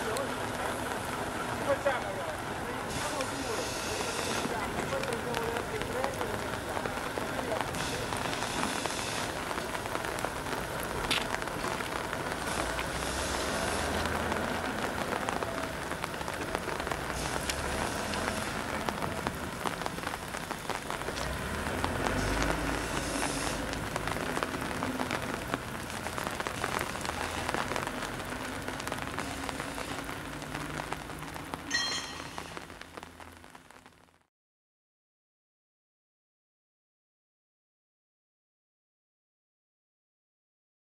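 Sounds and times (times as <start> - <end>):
steam locomotive hissing: 2.8 - 4.8, 7.7 - 9.5, 12.4 - 14.2, 22.2 - 23.8
high-pitched squeal: 31.7 - 32.8.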